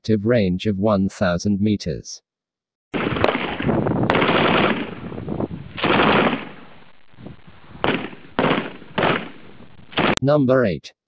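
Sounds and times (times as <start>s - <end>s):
machine gun bursts: 3.0s - 5.0s, 5.8s - 6.6s.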